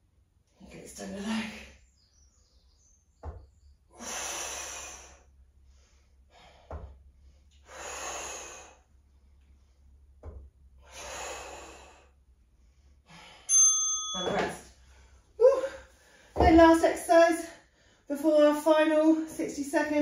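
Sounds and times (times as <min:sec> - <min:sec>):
person breathing hard: 0:03.9 - 0:09.9, 0:10.8 - 0:13.5.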